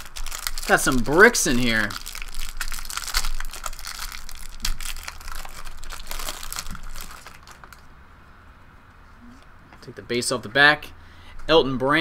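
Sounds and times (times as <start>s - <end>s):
wrapper crinkling: 0.0s - 7.9s.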